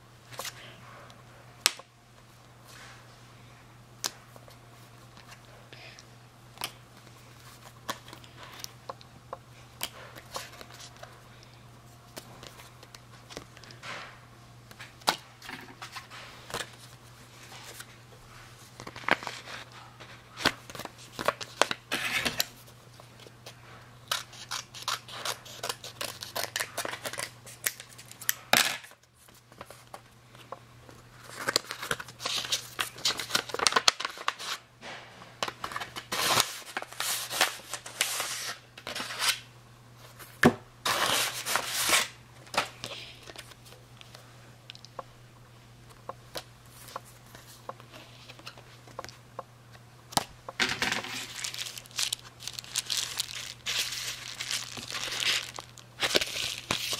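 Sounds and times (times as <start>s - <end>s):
paper rustling and crinkling: 35.5s - 39.4s, 50.8s - 56.9s.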